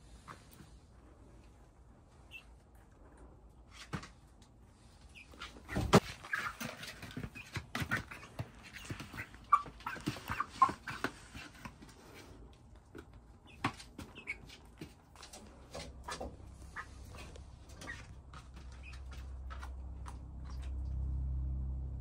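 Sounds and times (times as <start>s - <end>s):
chicks peeping and trilling: 5.0s - 21.0s.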